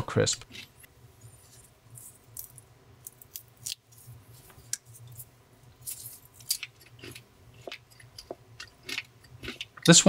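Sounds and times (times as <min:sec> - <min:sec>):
bacon tearing and chewing: 0:00.4 - 0:04.1, 0:05.8 - 0:10.0.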